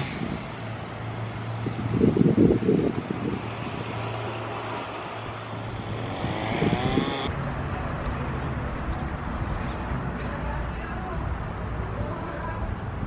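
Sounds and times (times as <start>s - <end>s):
hiss: 0.0s - 1.9s
vehicle engine passing: 0.0s - 12.0s.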